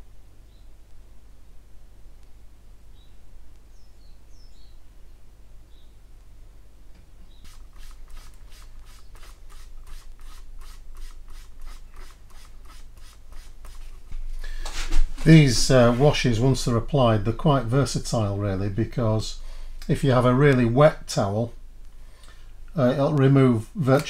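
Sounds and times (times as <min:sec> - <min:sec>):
hand rubbing plastic: 0:07.3 - 0:16.6.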